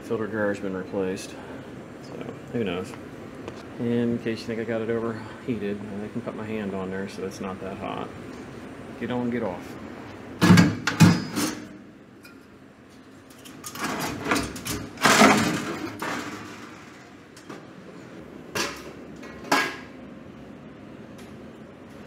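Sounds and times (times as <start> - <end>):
sheet metal scraping and rattling: 13.3 - 17.1.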